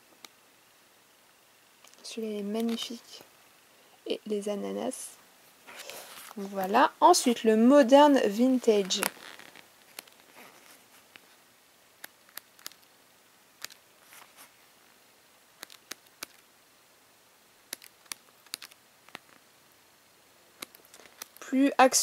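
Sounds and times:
paper pages turning: 8.7s - 11.2s, 13.6s - 14.6s, 15.6s - 16.4s, 17.8s - 19.4s.

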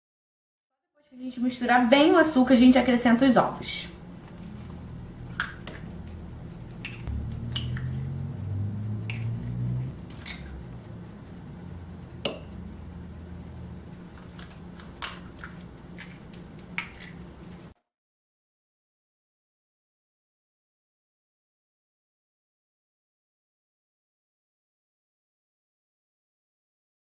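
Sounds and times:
eggs cracking against glass bowl: 5.3s - 6.0s, 6.7s - 7.9s, 14.1s - 17.3s.

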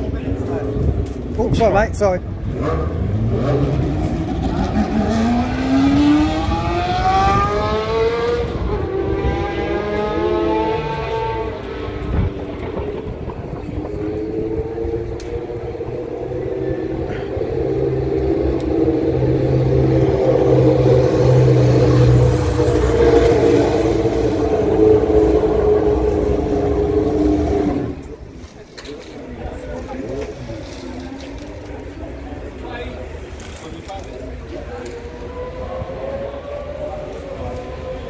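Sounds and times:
racing car engines revving high: 0.1s - 28.3s, 29.8s - 38.0s.

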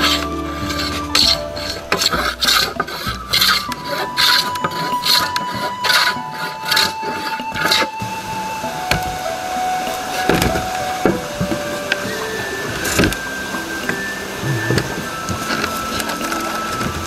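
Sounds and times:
hand plane shaving wood: 0.0s - 7.9s.

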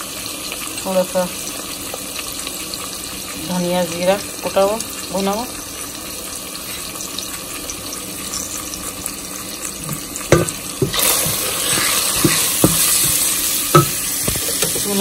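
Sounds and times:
oil sizzling in a pan: 0.0s - 15.0s
wooden spoon knocking a pan: 9.9s - 15.0s.

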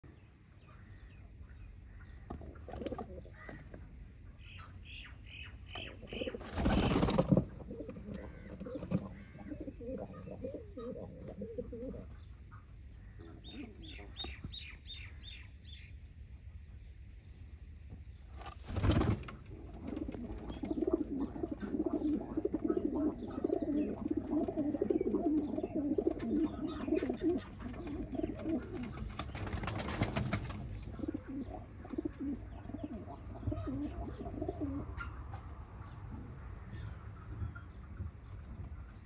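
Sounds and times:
pigeons cooing: 2.2s - 3.8s, 5.7s - 12.4s, 13.0s - 14.4s, 18.8s - 35.2s.

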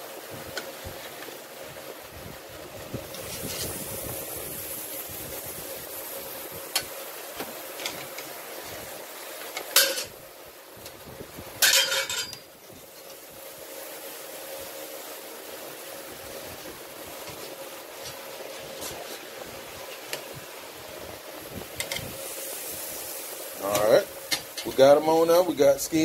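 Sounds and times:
steady background hiss: 0.0s - 26.0s
metal spatula clinking on grill: 11.6s - 12.4s.

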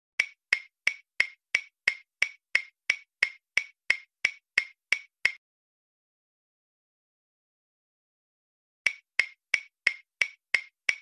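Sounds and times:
cartoon footstep clicks: 8.9s - 11.0s.

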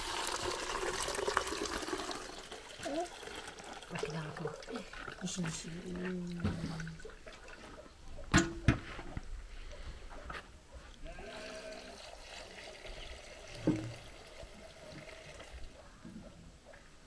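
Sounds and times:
water trickling into bag: 0.0s - 7.7s, 11.6s - 15.7s.

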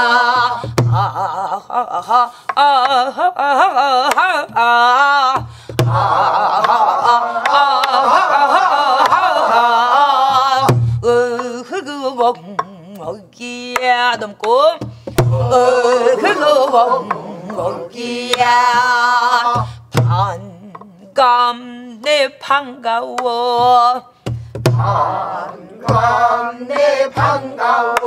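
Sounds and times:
woman singing folk song: 0.0s - 5.7s, 6.6s - 24.3s
deep barrel drum thumps: 5.3s - 6.1s, 14.8s - 15.7s, 19.6s - 20.4s, 23.6s - 25.2s.

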